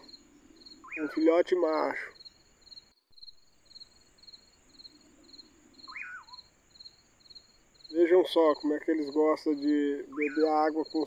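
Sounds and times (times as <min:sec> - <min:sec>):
pulsing high chirp: 0:04.8 - 0:06.5
bird whistle: 0:05.8 - 0:06.5, 0:10.1 - 0:10.6.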